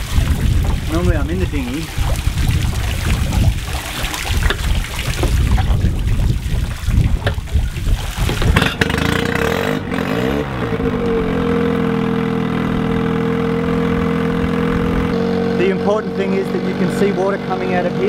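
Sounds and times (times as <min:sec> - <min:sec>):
water rushing and splashing: 0:00.0 - 0:18.0
outboard motor idling: 0:07.1 - 0:18.0.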